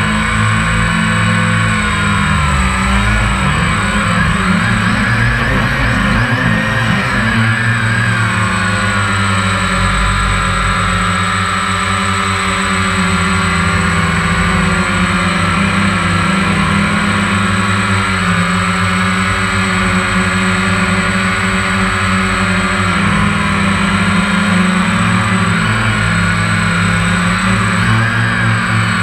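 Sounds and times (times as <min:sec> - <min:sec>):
drone propellers whirring: 0:00.0 - 0:29.0.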